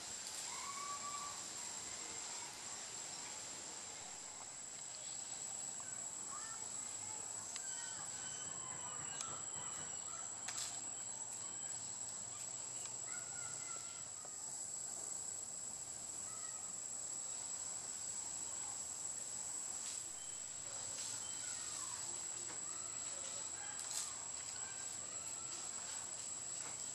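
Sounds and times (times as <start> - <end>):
insects buzzing: 0.0 - 26.9.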